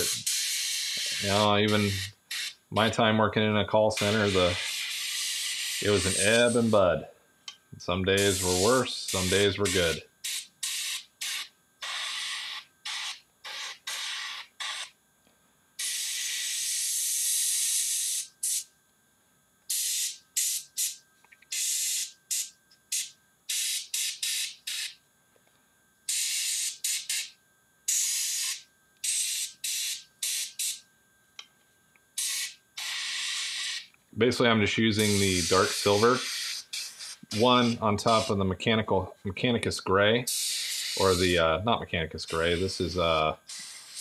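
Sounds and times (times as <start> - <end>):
airbrush spraying hiss: 0.0 - 2.6, 4.0 - 6.8, 8.2 - 14.8, 32.2 - 33.8, 35.0 - 38.4, 40.3 - 41.4, 42.3 - 44.0.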